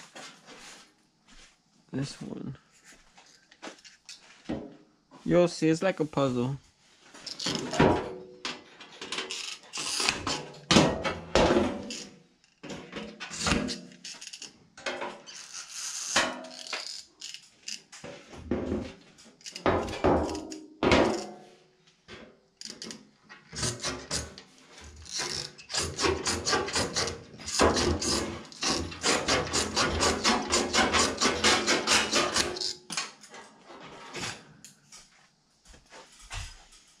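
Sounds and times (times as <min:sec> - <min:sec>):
metallic knocks and bangs: 0:10.2 - 0:11.9, 0:25.7 - 0:33.0.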